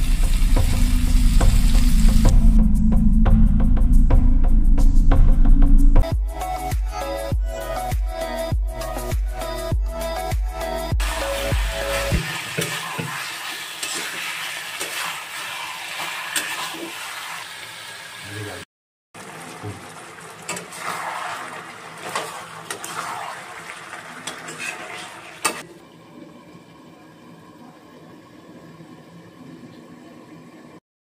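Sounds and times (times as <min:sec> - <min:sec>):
frying sizzle: 0:00.0 - 0:02.3, 0:11.0 - 0:18.6, 0:19.2 - 0:25.6
spatula scraping a pan: 0:12.2 - 0:17.5, 0:24.2 - 0:25.6.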